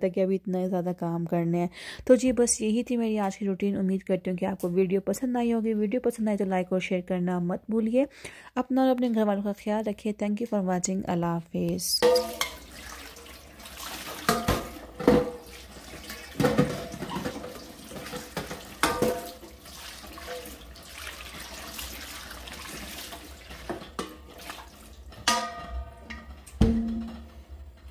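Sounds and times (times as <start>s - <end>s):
metal bowl knocking against sink: 12.0s - 12.7s, 14.2s - 15.5s, 16.3s - 19.5s, 25.2s - 27.4s
tap water running into metal bowl: 12.0s - 27.2s.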